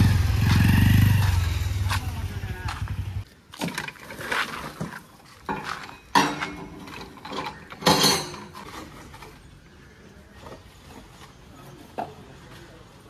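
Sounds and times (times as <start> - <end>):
metal parts clanking into steel bucket: 3.6 - 9.0.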